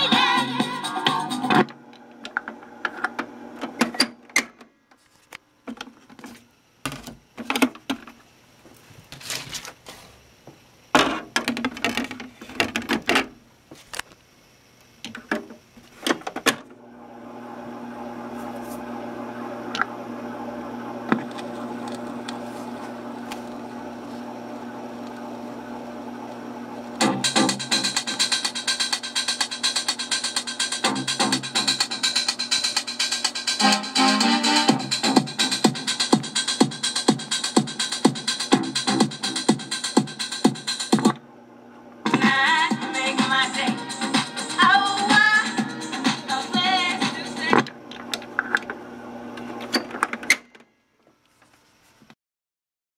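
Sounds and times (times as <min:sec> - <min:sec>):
toy record player music: 0:00.0 - 0:01.8, 0:27.0 - 0:41.2, 0:42.1 - 0:47.6
record player hum: 0:00.0 - 0:52.1.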